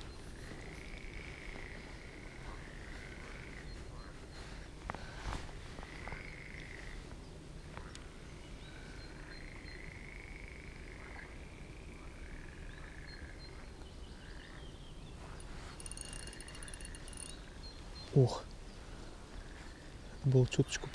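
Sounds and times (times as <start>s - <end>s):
frogs calling in trills: 0.0s - 4.6s, 5.8s - 7.1s, 7.7s - 18.3s.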